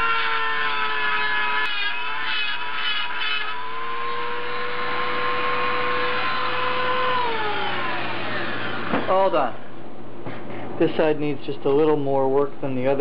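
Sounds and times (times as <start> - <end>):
rotary tool grinding metal: 0.0 - 8.9
rotary tool whining: 0.0 - 9.2.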